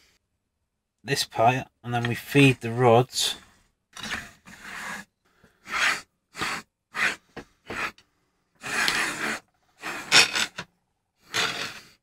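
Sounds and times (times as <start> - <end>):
steel rods sliding through bearings: 4.0 - 7.9, 8.6 - 10.6, 11.2 - 12.0.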